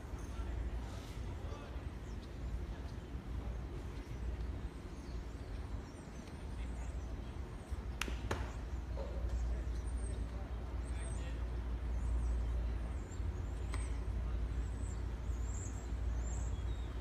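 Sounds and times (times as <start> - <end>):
faint distant voices: 0.0 - 17.0
baseball hitting glove cracks: 8.0 - 8.6.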